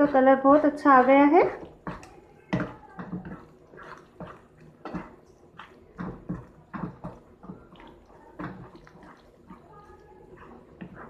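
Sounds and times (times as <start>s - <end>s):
spoon scraping and knocking pan: 0.0s - 11.0s.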